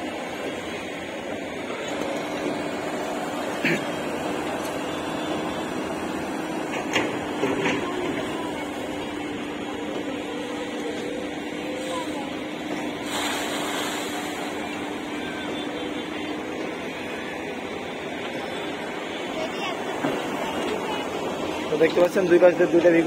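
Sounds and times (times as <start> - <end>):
excavator diesel engine humming: 0.0 - 23.0
water pouring from bucket: 13.0 - 14.4.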